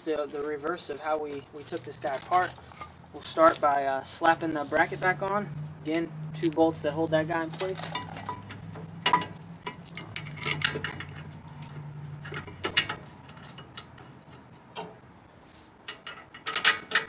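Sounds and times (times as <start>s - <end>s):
bolts clicking as hand-threaded: 0.2s - 15.2s, 15.8s - 17.0s
metal clinks and taps: 7.7s - 14.1s.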